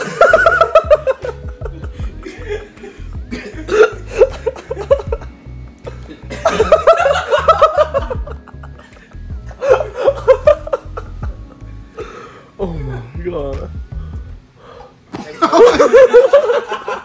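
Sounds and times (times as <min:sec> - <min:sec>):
people laughing: 0:00.0 - 0:11.5, 0:15.2 - 0:17.0
background music with low beat: 0:00.0 - 0:14.6.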